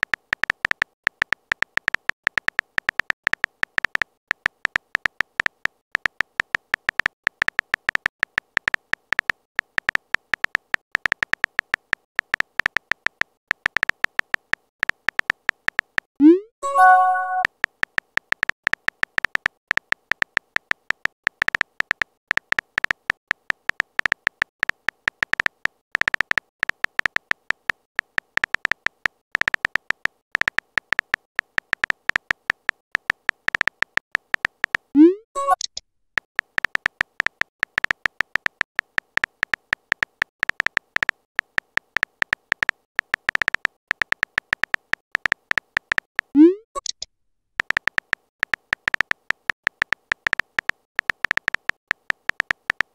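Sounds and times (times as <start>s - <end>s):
electronic typing blips: 12.3s - 17.5s, 28.4s - 35.8s, 36.5s - 47.0s, 47.6s - 52.9s.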